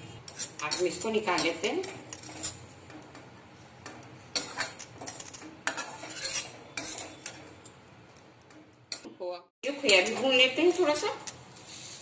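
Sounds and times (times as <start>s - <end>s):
metal spatula scraping metal pan: 0.2s - 3.0s, 4.2s - 7.7s.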